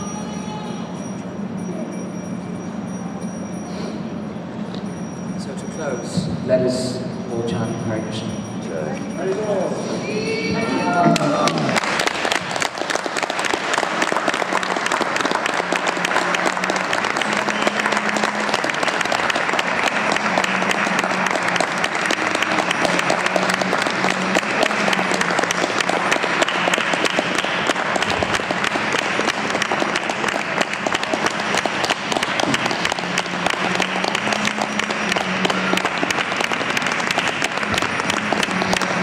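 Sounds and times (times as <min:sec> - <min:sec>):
audience applauding: 0:10.8 - 0:39.0.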